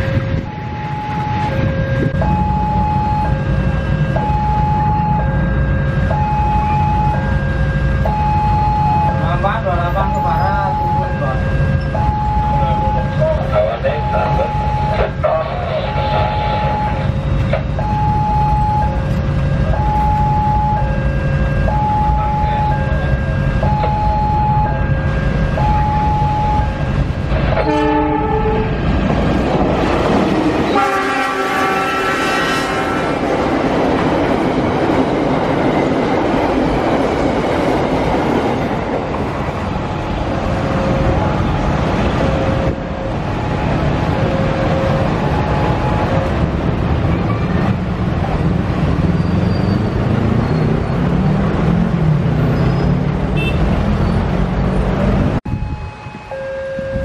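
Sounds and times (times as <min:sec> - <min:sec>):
freight train rumbling: 0:00.0 - 0:57.0
train horn blast: 0:27.6 - 0:28.8, 0:30.7 - 0:33.3.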